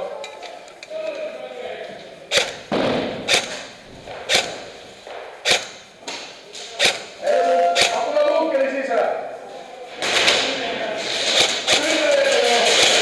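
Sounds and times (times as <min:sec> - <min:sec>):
airsoft gun shots: 0:02.3 - 0:04.7, 0:05.4 - 0:08.1, 0:10.0 - 0:13.0.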